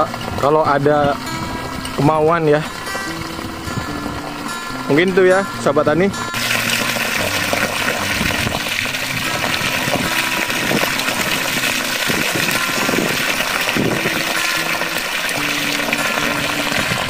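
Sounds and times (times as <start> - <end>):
water gushing into a pool: 6.4 - 17.0.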